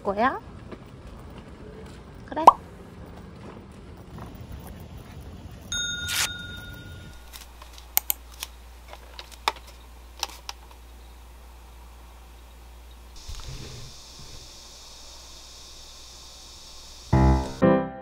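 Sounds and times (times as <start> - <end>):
bell-like ding: 5.7 - 7.3.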